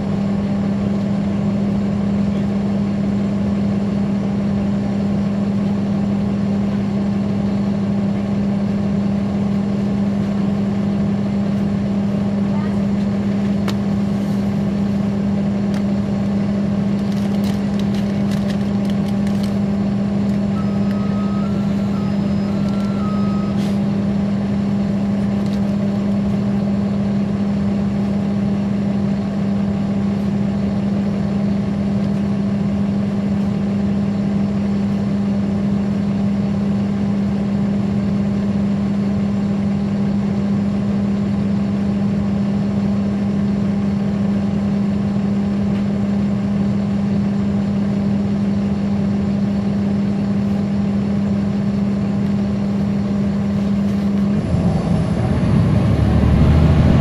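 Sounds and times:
bus diesel engine droning: 0.0 - 57.0
two-tone electronic beep: 20.6 - 23.6.

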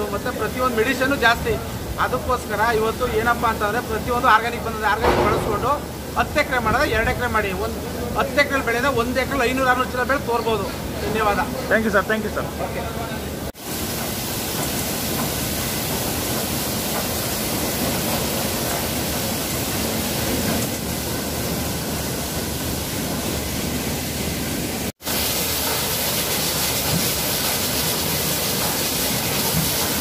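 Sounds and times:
washing machine running: 13.5 - 30.0
water spray hissing: 13.6 - 23.4, 25.0 - 30.0.

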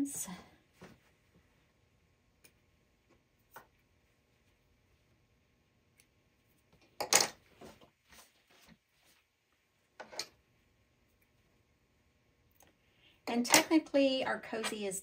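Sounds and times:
fabric being handled: 7.5 - 9.6.

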